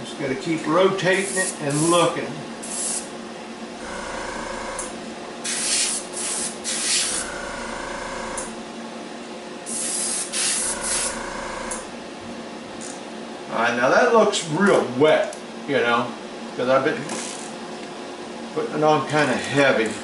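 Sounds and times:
steady background hum: 0.0s - 20.0s
airbrush hissing bursts: 2.6s - 3.1s, 5.5s - 7.3s, 9.7s - 11.2s.

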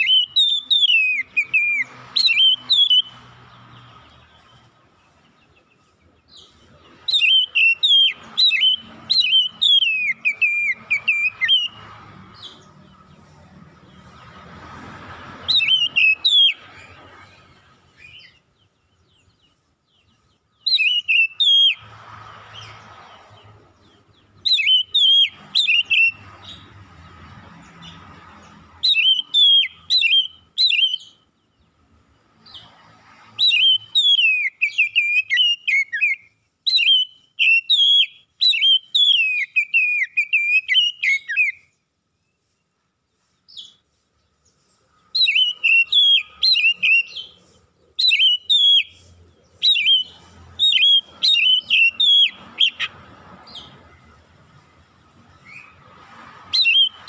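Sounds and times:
bird singing whistled phrases: 0.0s - 3.2s, 7.1s - 11.8s, 15.5s - 16.6s, 20.6s - 21.8s, 24.4s - 26.2s, 28.9s - 31.2s, 33.4s - 41.7s, 45.2s - 47.4s, 48.0s - 52.9s, 56.6s - 57.0s.

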